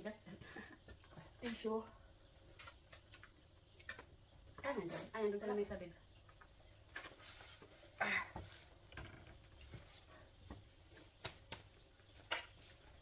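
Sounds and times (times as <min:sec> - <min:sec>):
faint clicks and taps of eating: 0:00.5 - 0:01.4, 0:02.4 - 0:04.6, 0:06.1 - 0:06.7.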